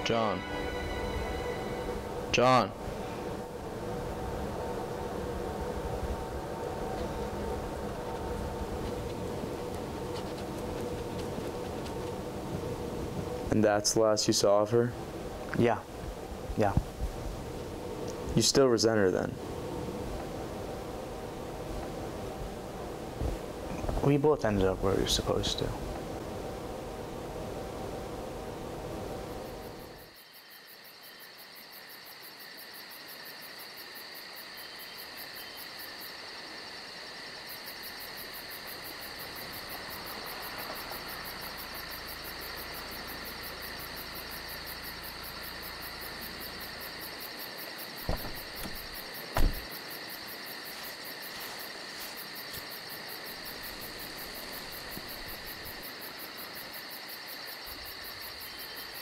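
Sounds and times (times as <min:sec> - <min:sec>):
low rumble: 0:00.0 - 0:13.6
crickets and insects chirring: 0:00.0 - 0:59.0
sharp knocks: 0:48.0 - 0:49.6.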